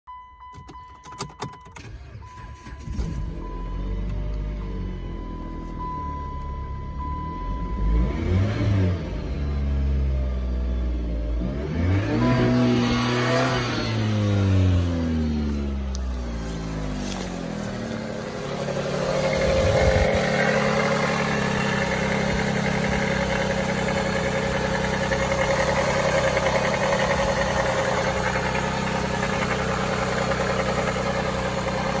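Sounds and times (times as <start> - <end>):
car engine idling: 12.2 - 32.0.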